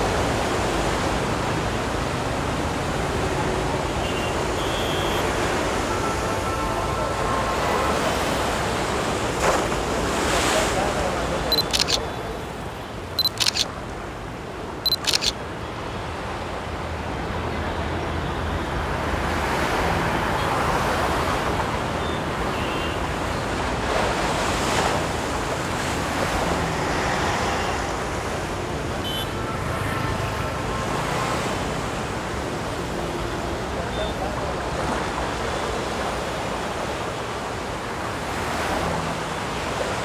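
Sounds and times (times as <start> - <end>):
surf-like wash: 0.0 - 40.0
traffic roar: 0.0 - 40.0
camera shutter clicks: 11.6 - 12.1, 13.2 - 13.7, 14.9 - 15.4.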